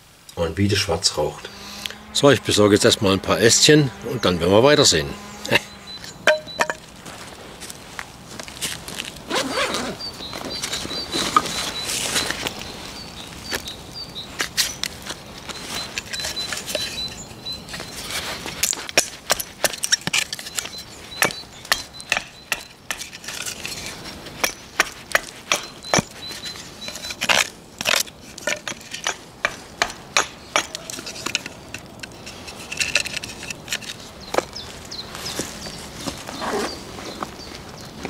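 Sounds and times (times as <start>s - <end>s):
hatchet chopping wood: 18.7s - 23.2s, 24.4s - 26.2s, 27.3s - 31.0s.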